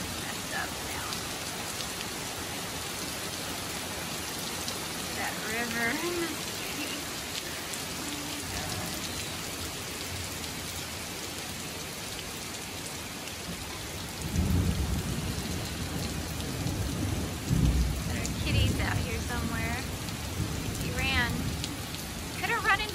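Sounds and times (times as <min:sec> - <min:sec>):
heavy rain pouring: 0:00.0 - 0:22.9
thunder rumbling: 0:05.1 - 0:07.0, 0:14.2 - 0:22.9.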